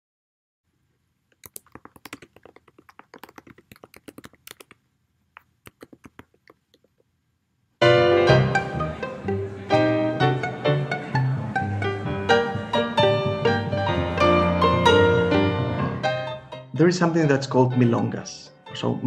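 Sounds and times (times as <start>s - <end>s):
keyboard key clicks: 1.4s - 4.8s
music with bowed strings: 7.8s - 16.4s.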